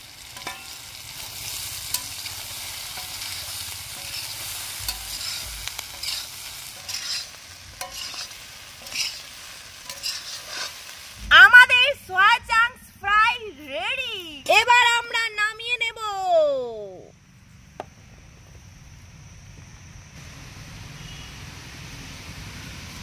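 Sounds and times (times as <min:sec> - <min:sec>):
oil sizzling in a pan: 0:00.0 - 0:12.5, 0:20.2 - 0:23.0
utensil scraping a pan: 0:02.9 - 0:10.9.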